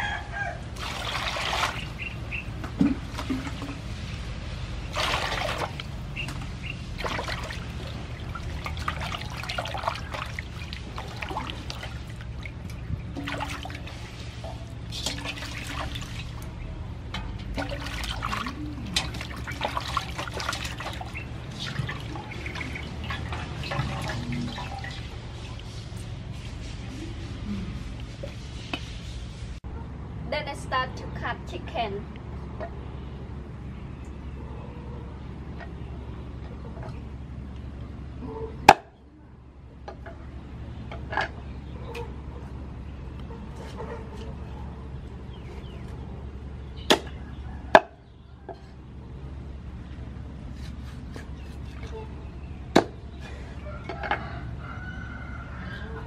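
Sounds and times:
water splashing in metal basin: 0.7s - 4.2s, 4.8s - 25.7s
water dripping: 4.9s - 16.5s, 17.1s - 25.7s.

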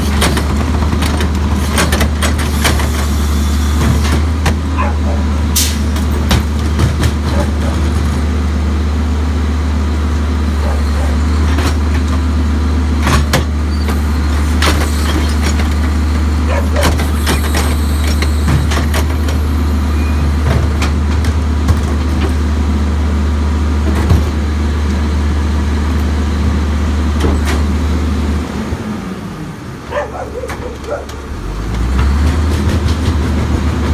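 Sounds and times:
carts clattering against hopper: 0.0s - 3.1s, 3.8s - 8.3s, 13.0s - 19.5s, 29.9s - 33.9s
diesel engine droning: 0.0s - 33.9s.

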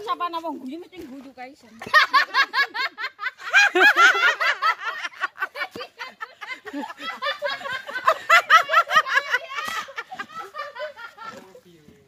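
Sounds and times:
person laughing: 3.5s - 11.4s.

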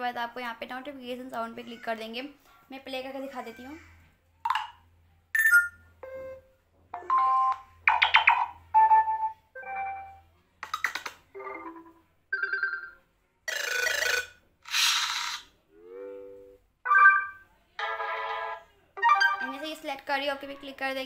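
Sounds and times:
phone notification tones: 5.4s - 6.4s, 11.4s - 13.0s, 16.1s - 19.6s.

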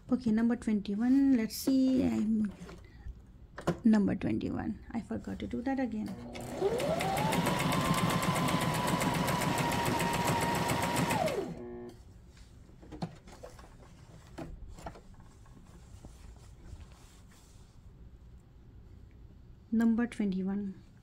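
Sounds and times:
sewing machine stitching: 6.1s - 11.9s.

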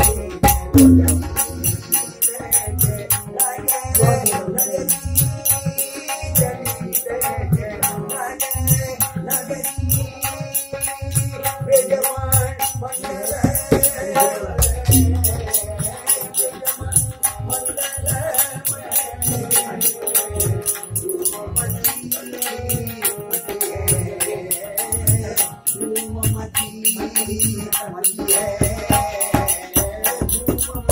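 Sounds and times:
drum beat: 0.0s - 1.9s, 14.6s - 15.7s, 28.5s - 30.9s
harmonium: 0.0s - 30.9s
man singing: 0.0s - 30.9s
rattling hand percussion: 0.0s - 30.9s.

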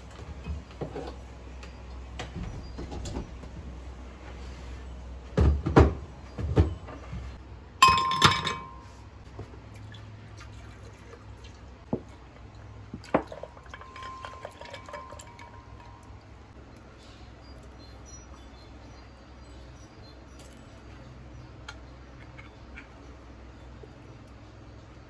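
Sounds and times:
glass and dishes clinking: 7.8s - 8.9s, 13.2s - 16.2s.

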